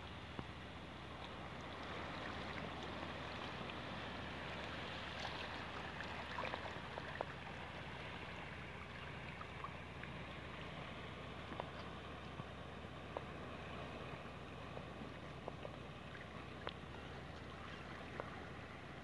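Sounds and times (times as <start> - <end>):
trickling water ticks: 0.0 - 0.6, 11.4 - 12.4, 13.1 - 13.3, 14.7 - 18.4
low steady hum: 0.0 - 19.0
small waves lapping on rocky shore: 0.0 - 19.0.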